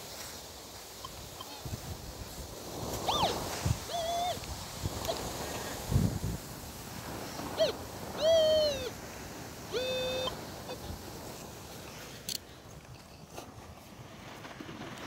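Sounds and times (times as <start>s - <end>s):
metal detector beeps: 3.1s - 4.4s, 9.8s - 10.3s.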